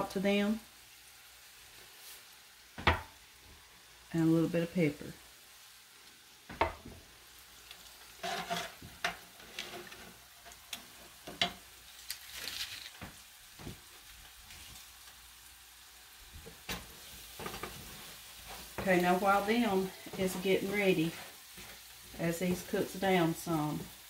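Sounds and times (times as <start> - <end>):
spices sizzling in oil: 0.0 - 24.0
utensils clicking and scraping pans: 7.7 - 13.8, 16.4 - 22.8.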